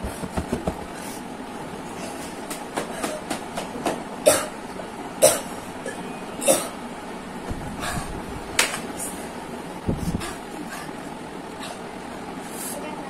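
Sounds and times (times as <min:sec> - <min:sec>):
people coughing: 0:04.2 - 0:04.6, 0:05.2 - 0:06.8.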